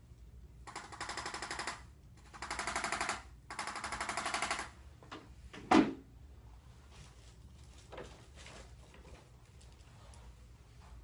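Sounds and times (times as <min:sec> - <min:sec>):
electric tool rapid tapping: 0:00.7 - 0:04.7.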